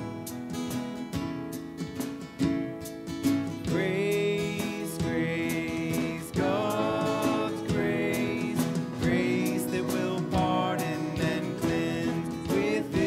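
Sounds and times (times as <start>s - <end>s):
church band playing: 0.0s - 13.0s
congregation singing a hymn: 3.7s - 13.0s.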